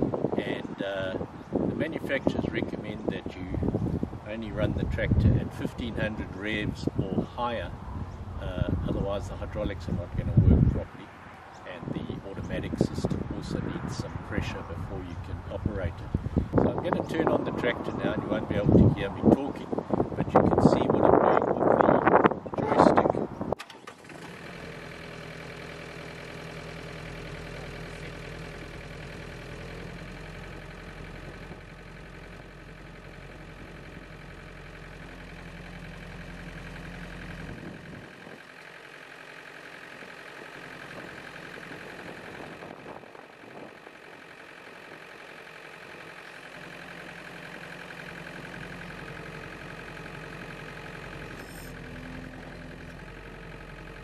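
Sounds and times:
tractor engine running: 0.0s - 54.0s
front loader raising bucket: 44.3s - 54.0s.

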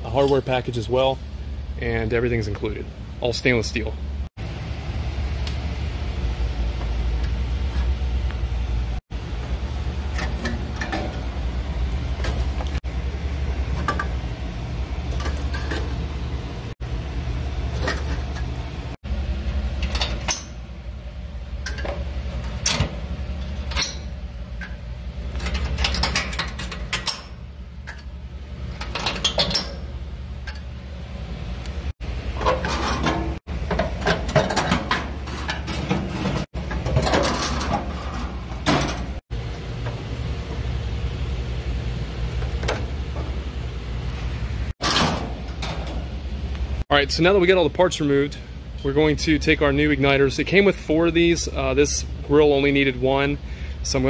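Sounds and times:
metal clanking and rattling: 10.0s - 11.4s, 21.6s - 30.7s, 32.3s - 39.2s, 44.8s - 46.1s.

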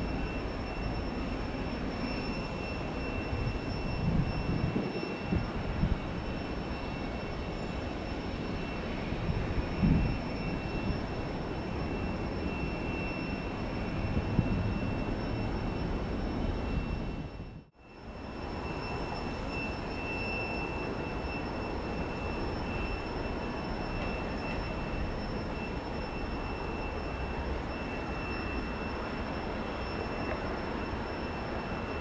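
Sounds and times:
distant jet engine noise: 0.0s - 32.0s
wind on microphone: 3.2s - 7.6s, 8.9s - 12.1s, 12.8s - 17.7s.

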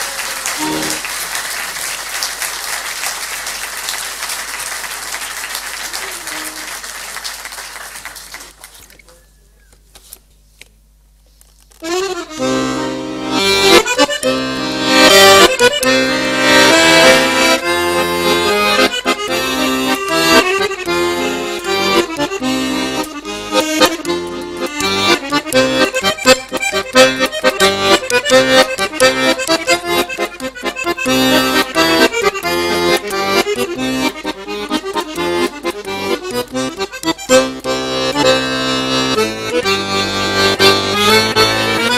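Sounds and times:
piano accordion playing fast: 0.0s - 6.9s, 11.8s - 41.9s
audience applause: 0.0s - 8.9s.

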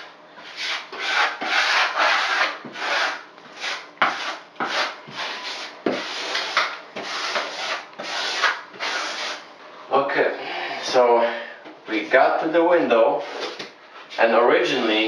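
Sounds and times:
tool spreading membrane strokes: 0.4s - 9.4s.

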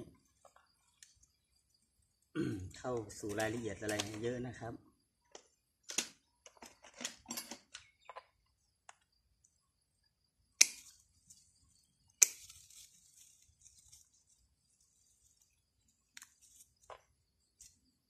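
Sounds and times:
leaves and twigs rustling: 10.8s - 18.0s
pruning shears snipping: 12.2s - 12.8s.

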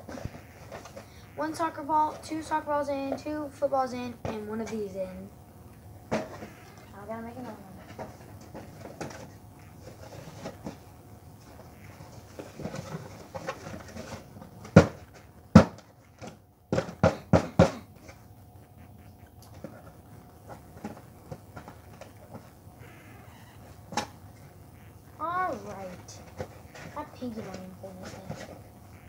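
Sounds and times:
objects knocking and clattering: 6.1s - 6.8s, 7.9s - 9.3s, 12.1s - 18.2s.

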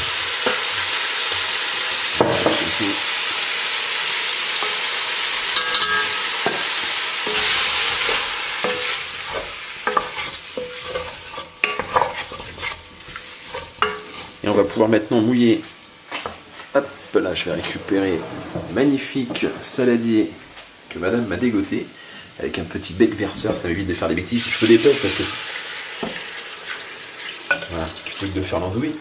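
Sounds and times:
meat and onions sizzling in oil: 0.0s - 17.8s, 20.2s - 29.0s
wooden spoon knocking and scraping pot: 5.6s - 14.7s.

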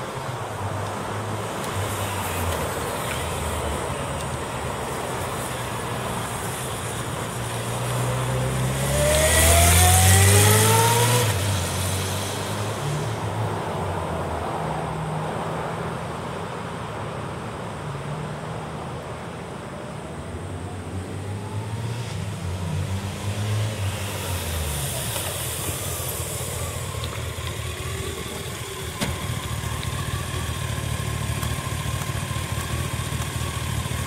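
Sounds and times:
motorcycle engine passing by: 7.5s - 13.2s.

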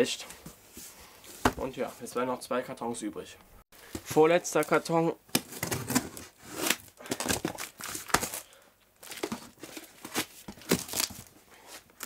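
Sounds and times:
cardboard box rustling and tearing: 5.4s - 8.4s, 9.0s - 11.3s.

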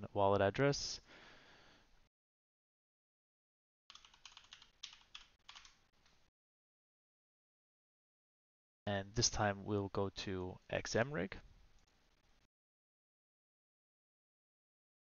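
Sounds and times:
computer keyboard typing: 3.9s - 5.8s.

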